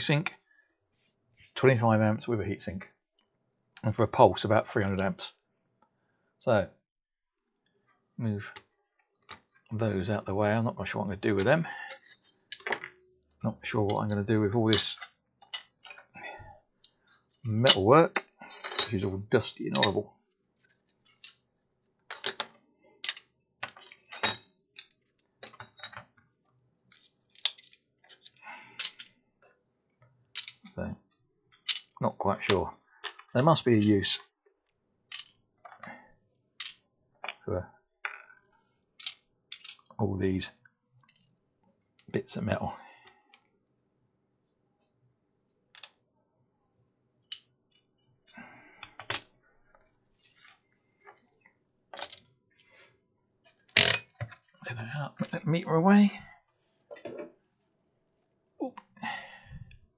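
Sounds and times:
metal parts clicking and clacking: 11.4s - 16.1s, 16.8s - 19.0s, 19.7s - 20.0s, 22.1s - 26.1s, 26.9s - 29.2s, 30.4s - 30.8s, 31.5s - 34.0s, 35.1s - 35.9s, 36.6s - 37.5s, 39.0s - 39.9s, 41.0s - 41.3s, 47.3s - 47.9s, 48.8s - 49.3s, 51.9s - 52.3s, 53.7s - 54.4s
metal parts rattling: 13.9s - 16.0s, 18.4s - 19.0s, 19.8s - 20.0s, 22.1s - 22.4s, 23.0s - 26.0s, 26.9s - 29.1s, 30.4s - 30.8s, 31.6s - 32.0s, 35.1s - 35.3s, 36.6s - 37.4s, 39.0s - 39.9s, 51.9s - 52.3s, 53.8s - 54.3s
metal pieces clinking: 23.0s - 26.0s, 26.9s - 29.1s, 30.4s - 30.7s, 31.6s - 32.0s, 35.1s - 35.3s, 36.6s - 36.8s, 39.0s - 39.9s, 52.0s - 52.3s, 53.8s - 54.1s.

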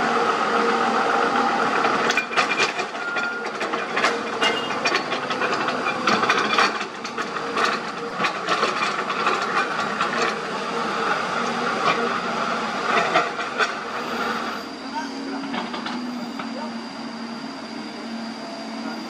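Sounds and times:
excavator and dump truck engines: 0.0s - 19.0s
excavator bucket digging earth: 1.5s - 16.8s.

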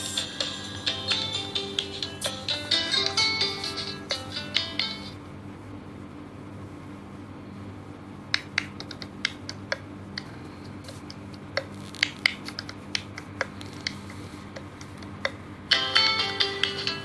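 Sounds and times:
guitar music: 0.0s - 5.2s
sharp clicks and ticks: 8.3s - 15.4s.

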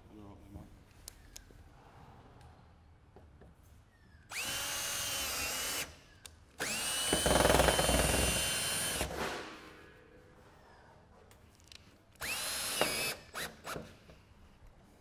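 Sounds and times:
cordless drill driving screws into metal: 6.6s - 9.2s, 12.2s - 13.9s.

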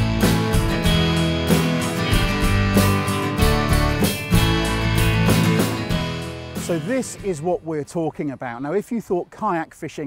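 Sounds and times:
strummed guitar music with beat: 0.0s - 7.6s.

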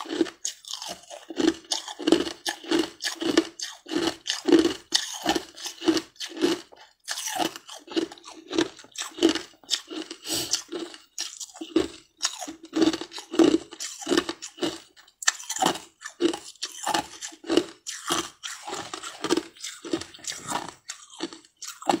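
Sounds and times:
person chewing crunchy food: 0.0s - 22.0s.

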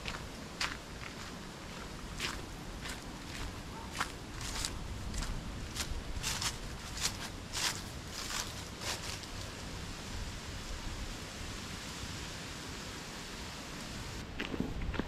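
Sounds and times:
footsteps on a trail: 0.0s - 9.4s
outdoor background hiss: 0.0s - 15.0s.

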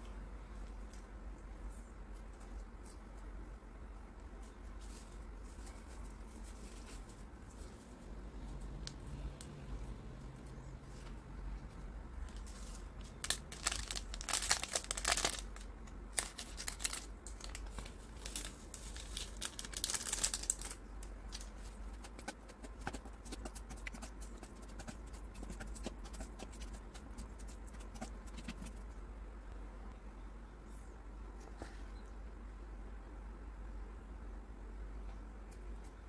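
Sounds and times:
plastic sachets crinkling and tearing: 12.3s - 22.4s.

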